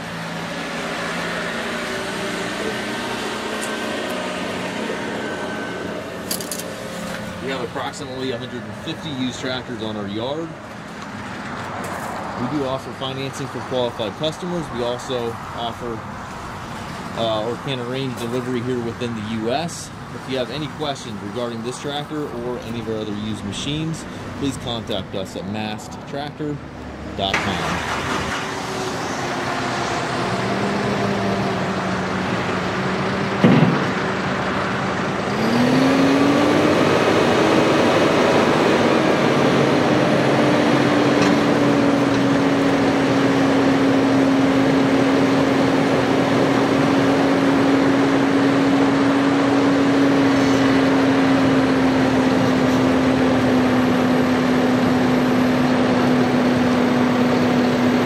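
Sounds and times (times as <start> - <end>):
tractor diesel engine: 0.0 - 58.0
sharp knock: 33.4 - 33.9.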